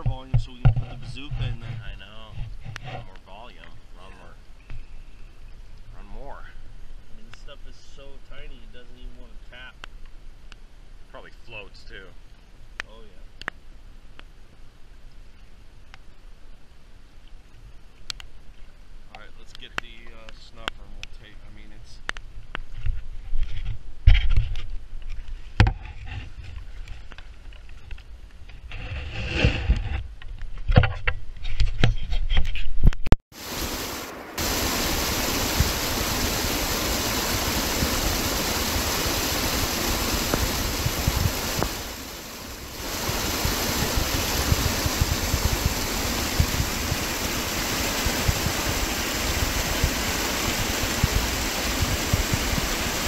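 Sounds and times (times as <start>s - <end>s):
creek rushing over rocks: 33.3s - 53.0s.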